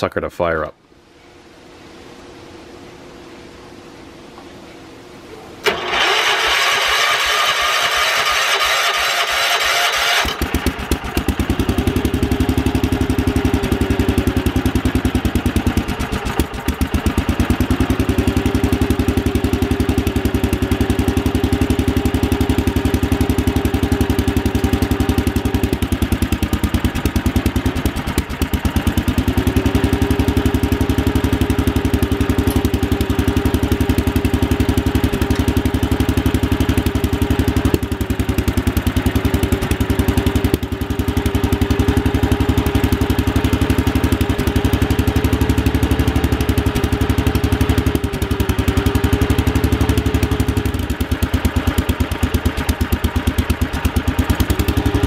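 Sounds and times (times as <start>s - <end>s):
single-cylinder engine running: 5.6s - 55.0s.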